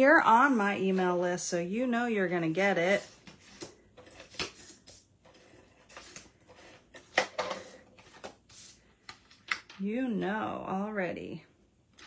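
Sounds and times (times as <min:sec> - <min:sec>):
cardstock rustling and tapping: 0:03.0 - 0:09.8.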